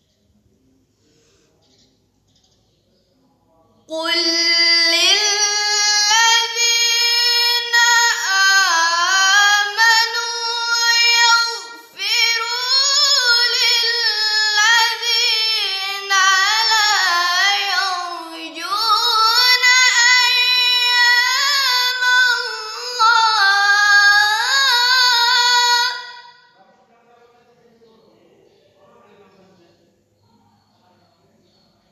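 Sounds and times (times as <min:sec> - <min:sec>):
girl reciting melodically: 0:03.8 - 0:26.6.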